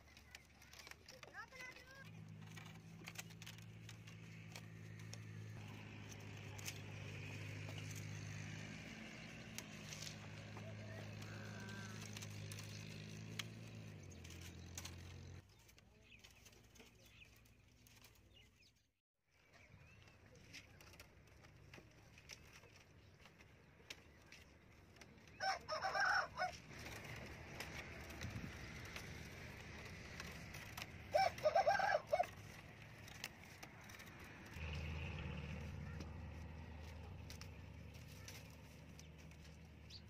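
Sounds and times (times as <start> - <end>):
rooster crowing: 25.4 - 26.6, 31.1 - 32.2.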